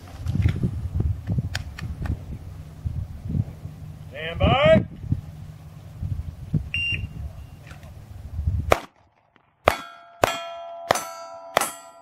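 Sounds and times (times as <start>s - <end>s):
shot timer beep: 6.7s - 7.2s
pistol shots: 8.7s - 11.0s
steel plates ringing: 9.7s - 12.0s.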